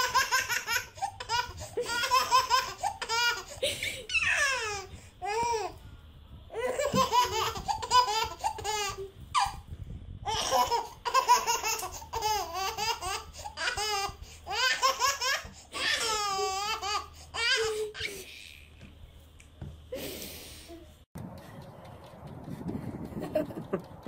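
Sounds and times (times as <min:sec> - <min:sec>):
baby laughing: 0:00.0 - 0:05.7, 0:06.6 - 0:09.6, 0:10.3 - 0:18.7.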